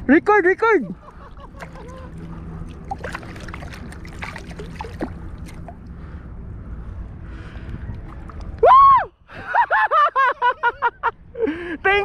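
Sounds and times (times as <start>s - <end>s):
wind and waves rushing: 0.9s - 8.6s
water splashing and dripping: 1.6s - 5.9s.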